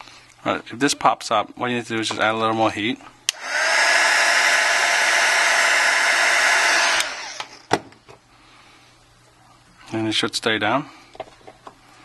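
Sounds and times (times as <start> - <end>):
heat gun blowing hot air: 3.3 - 7.7.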